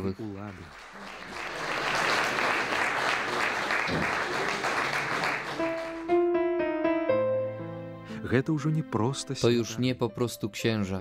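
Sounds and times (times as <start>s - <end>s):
audience applauding: 0.0s - 6.2s
slow piano music: 5.5s - 11.0s.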